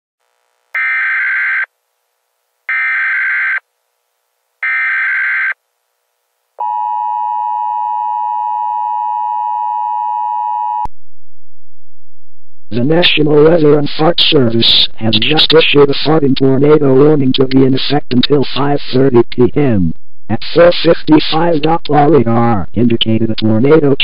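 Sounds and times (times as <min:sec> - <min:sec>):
warbling data tones: 0:00.8 - 0:01.7
low hum: 0:06.6 - 0:14.0.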